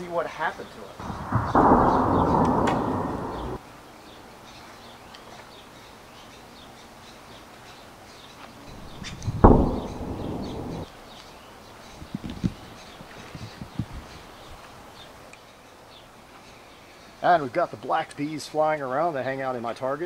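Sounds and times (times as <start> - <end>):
faint birdsong: 0.6 - 20.0
dull low rumbling: 1.0 - 3.6, 8.7 - 10.8
loud sharp knock: 1.0 - 3.6, 8.8 - 10.8.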